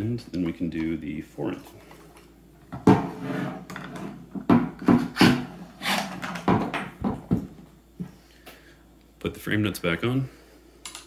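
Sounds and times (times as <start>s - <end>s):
plastic parts knocking and scraping: 3.7s - 7.5s.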